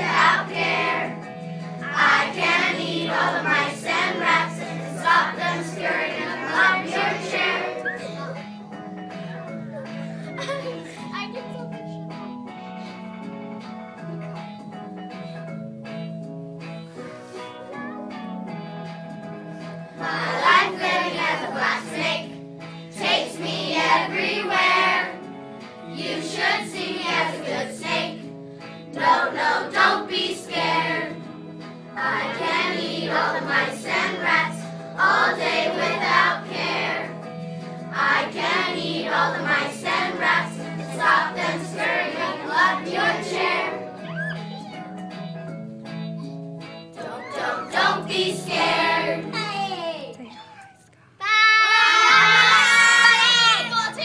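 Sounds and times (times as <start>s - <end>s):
children singing together: 0.0s - 8.4s, 20.0s - 25.3s, 25.9s - 28.3s, 28.9s - 31.4s, 32.0s - 37.2s, 37.9s - 44.8s, 47.0s - 49.5s.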